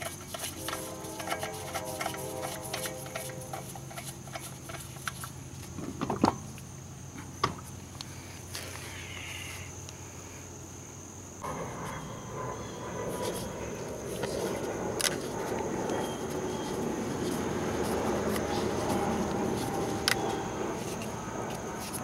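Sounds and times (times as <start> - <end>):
high-pitched tone: 0.4 - 4.2.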